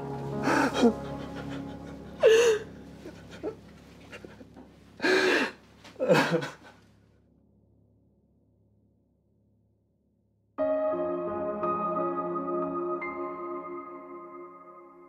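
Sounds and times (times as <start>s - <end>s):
person gasping: 0.3s - 3.6s, 4.2s - 6.8s.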